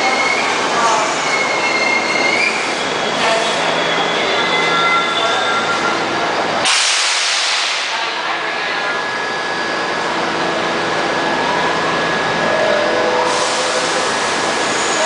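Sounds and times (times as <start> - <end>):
stationary train equipment whir: 0.0 - 15.0
train air hiss: 6.6 - 8.0, 13.3 - 14.8.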